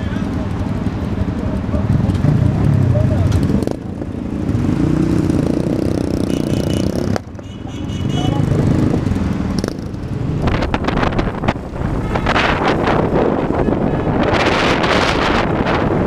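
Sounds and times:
motorcycle and car engines: 0.0s - 16.0s
wind buffeting microphone: 8.7s - 16.0s.

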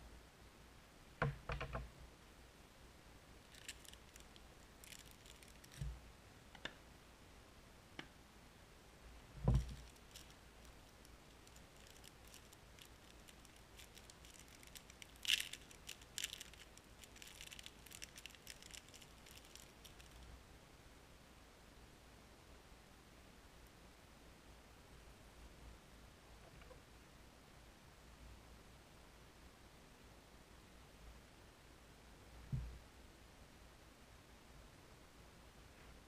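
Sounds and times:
plastic wrapper crinkling: 3.4s - 6.0s, 9.4s - 20.3s.

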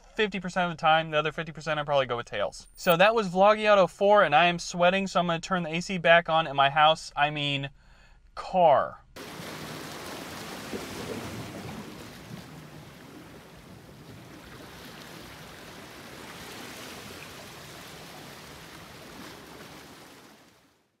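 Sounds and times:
sea water washing against rocks: 9.2s - 20.8s.

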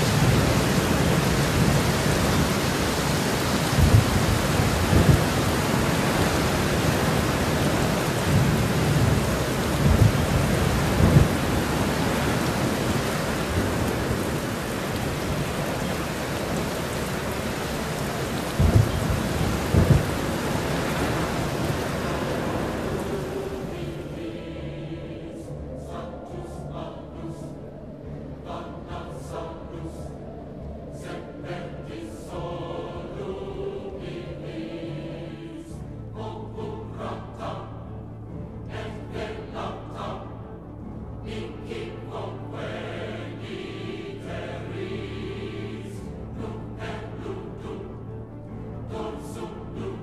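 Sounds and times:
steady rain hiss: 0.0s - 50.0s
thunder booms: 3.4s - 23.1s.

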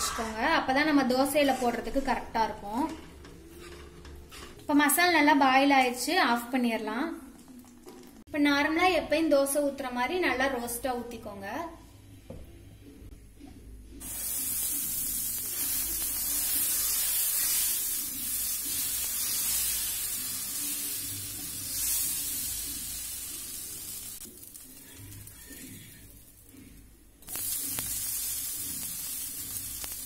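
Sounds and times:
batter sizzling on hot pan: 14.0s - 26.6s, 27.2s - 30.0s.

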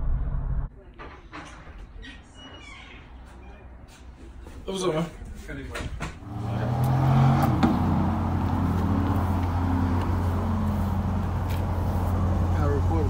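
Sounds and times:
car engine idling: 6.2s - 13.0s.

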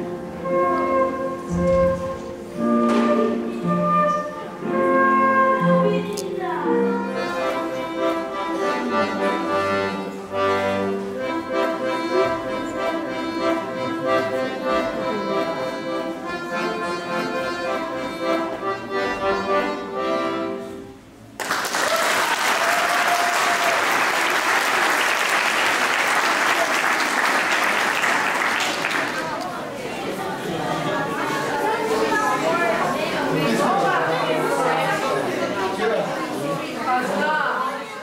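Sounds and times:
solo accordion playing: 0.0s - 21.1s
audience applause: 21.4s - 29.7s.

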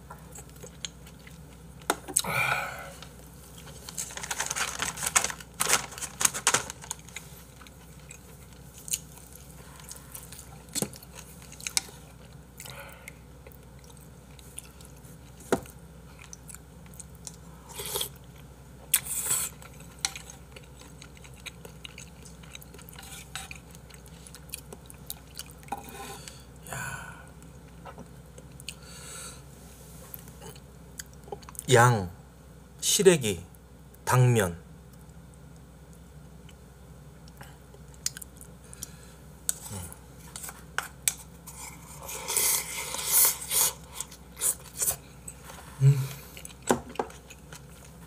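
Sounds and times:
chewing food: 7.0s - 25.8s, 37.2s - 39.7s, 46.3s - 48.0s.

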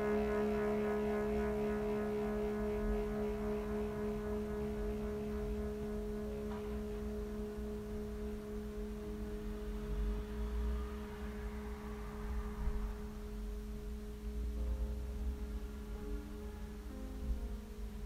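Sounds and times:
drone of two held tones: 0.0s - 17.6s
low rumble: 1.8s - 18.0s.

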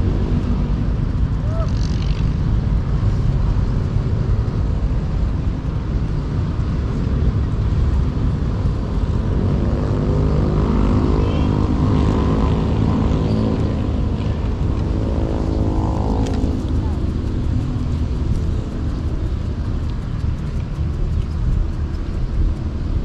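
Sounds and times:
wind buffeting microphone: 0.0s - 23.0s
motor engine droning: 7.4s - 23.0s.

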